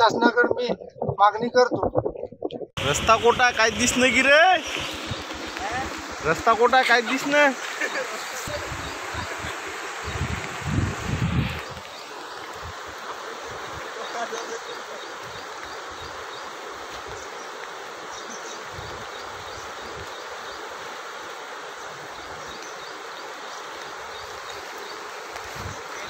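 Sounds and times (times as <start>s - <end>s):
wind gusts on microphone: 0.0s - 11.9s, 25.4s - 26.0s
flood water rushing: 2.8s - 26.0s.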